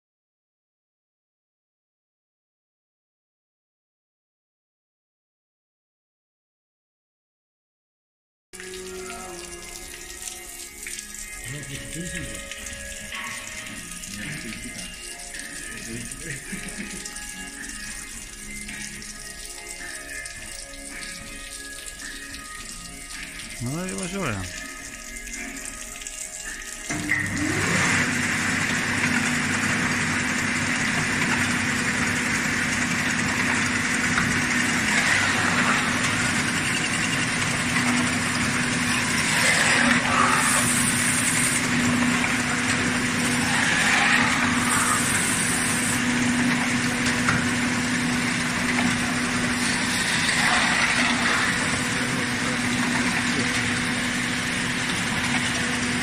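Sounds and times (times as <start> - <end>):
machine humming: 26.4 - 56.0
loud machine hiss: 34.6 - 42.6, 43.2 - 46.4.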